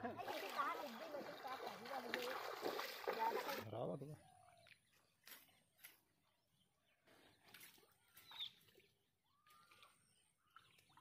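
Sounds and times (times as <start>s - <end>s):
faint bird chirps: 4.1s - 11.0s.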